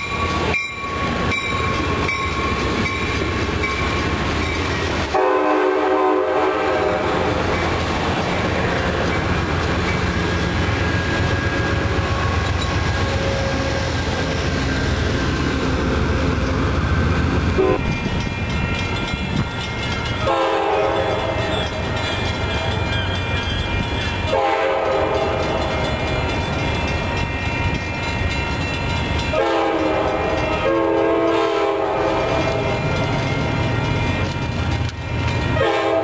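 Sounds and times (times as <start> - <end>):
low train rumble: 0.0 - 36.0
train horn blasts: 5.1 - 7.4, 17.6 - 18.0, 20.2 - 21.5, 24.2 - 25.7, 29.3 - 32.8, 35.5 - 36.0.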